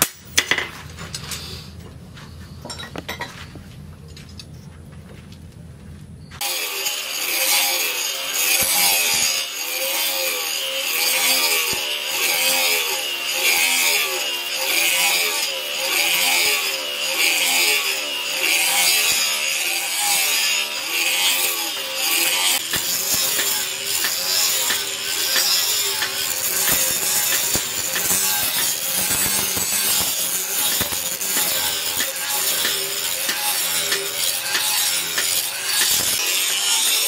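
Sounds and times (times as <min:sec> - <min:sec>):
angle grinder grinding steel: 0:06.4 - 0:37.0.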